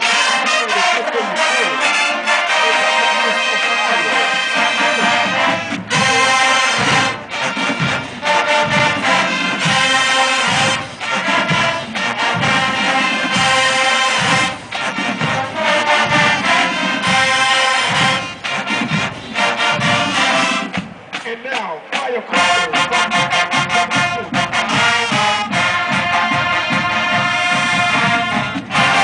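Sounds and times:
marching band brass and drums: 0.0 - 29.0.

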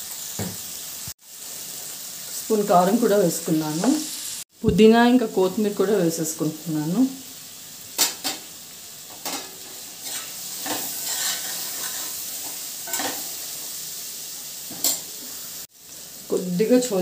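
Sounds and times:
food sizzling: 0.0 - 17.0
spatula scraping pot: 10.0 - 12.2.

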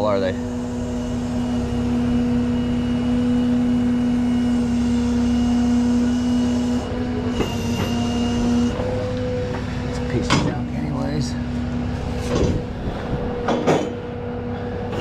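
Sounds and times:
hydraulic winch whine: 0.0 - 15.0
truck engine rumble: 0.0 - 15.0.

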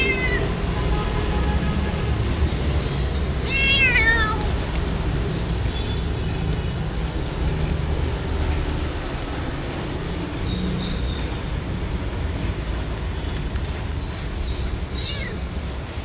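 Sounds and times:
cats meowing: 0.0 - 0.6, 3.3 - 4.7, 14.6 - 15.7.

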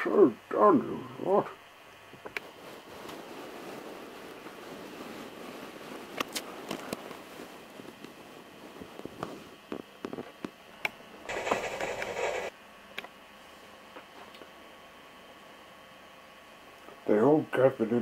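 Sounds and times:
abrupt burst of noise: 11.3 - 12.5
toy trains clicking on track: 11.3 - 12.5.

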